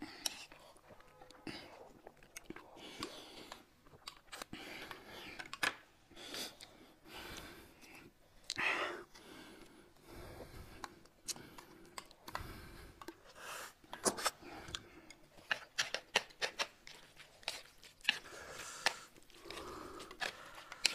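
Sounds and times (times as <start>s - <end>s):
breathing: 4.5s - 15.2s, 18.1s - 20.9s.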